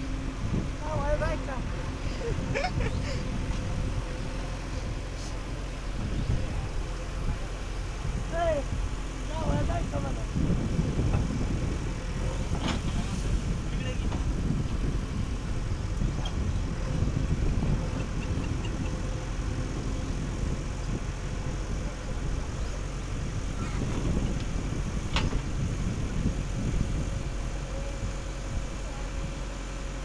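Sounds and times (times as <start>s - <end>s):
diesel engine running: 0.0s - 30.0s
digger arm scooping mud: 10.7s - 17.0s.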